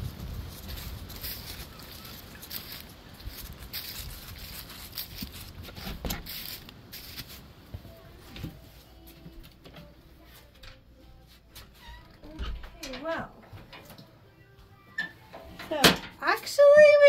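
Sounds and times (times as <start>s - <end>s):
footsteps crunching dry leaves: 0.0s - 7.9s
wooden door opening: 11.6s - 14.0s.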